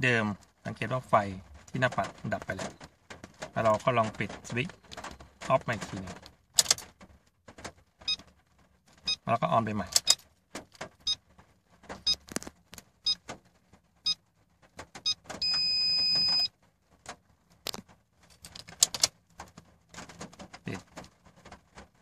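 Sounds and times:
steady high beep: 0:15.4 - 0:16.5.

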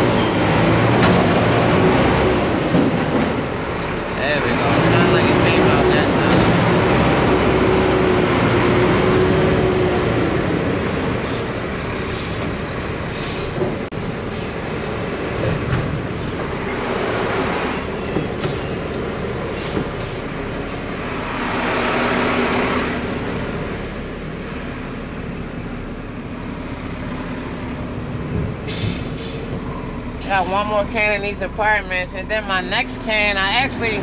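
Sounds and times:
diesel engine running: 0:00.0 - 0:34.0.

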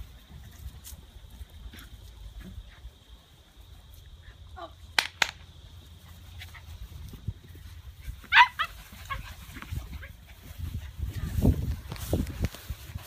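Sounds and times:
puppies yipping and barking: 0:07.9 - 0:10.8.

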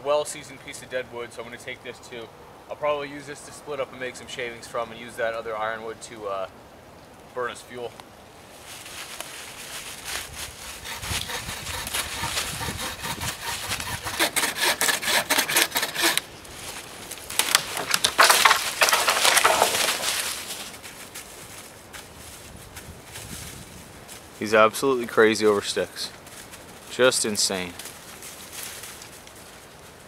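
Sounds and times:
wood scraping and creaking: 0:10.6 - 0:21.2
dry wood cracking and splintering: 0:10.8 - 0:20.8.

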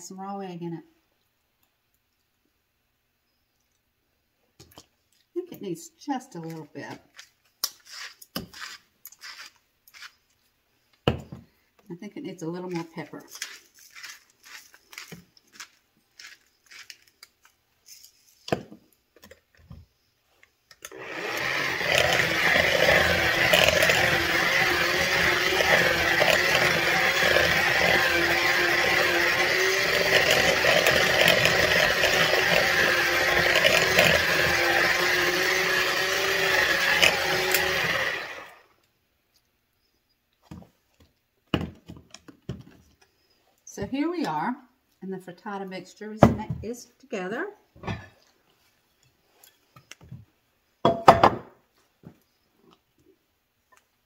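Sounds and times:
hand mixer whipping: 0:20.9 - 0:38.6.

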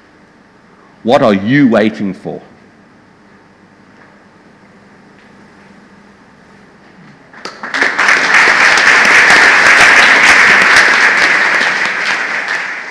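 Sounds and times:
audience applauding: 0:07.3 - 0:12.9.

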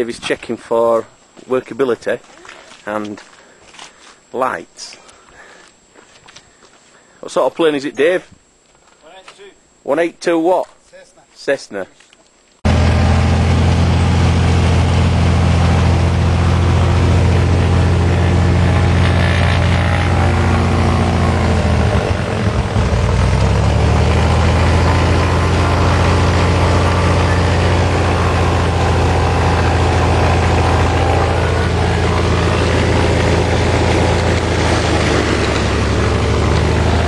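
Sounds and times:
propeller plane engine: 0:12.7 - 0:37.0.

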